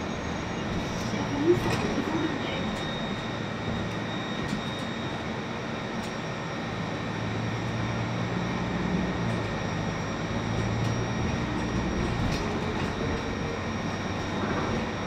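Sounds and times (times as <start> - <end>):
bus engine hum: 0.0 - 15.0
road and rolling noise: 0.0 - 15.0.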